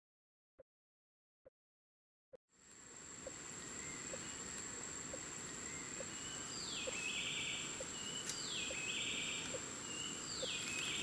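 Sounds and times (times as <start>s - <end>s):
insects whining: 2.6s - 11.0s.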